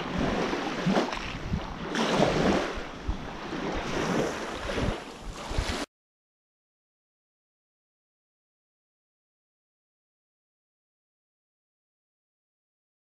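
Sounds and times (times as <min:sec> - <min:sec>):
small waves washing onto sand: 0:00.0 - 0:05.9
wind gusts on microphone: 0:00.0 - 0:05.9.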